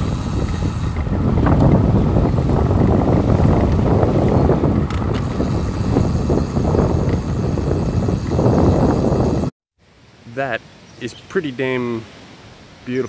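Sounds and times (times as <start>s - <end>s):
wind buffeting microphone: 0.0s - 9.5s.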